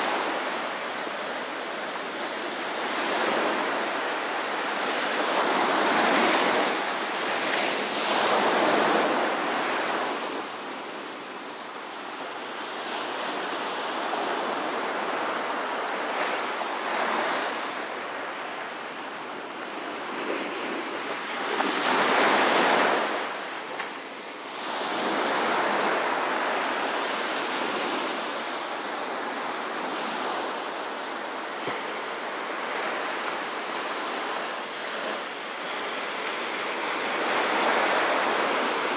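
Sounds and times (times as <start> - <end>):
ocean waves breaking on beach: 0.0 - 38.9.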